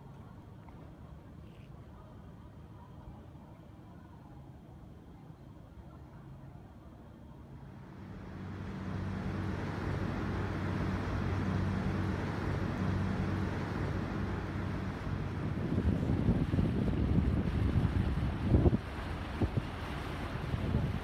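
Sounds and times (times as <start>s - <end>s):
low engine hum with rushing: 7.7s - 21.0s.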